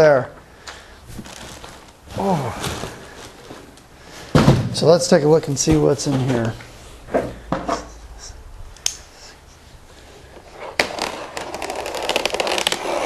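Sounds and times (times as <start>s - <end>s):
scratchy crackling: 10.6s - 13.0s
knife cutting plastic packaging: 10.8s - 13.0s.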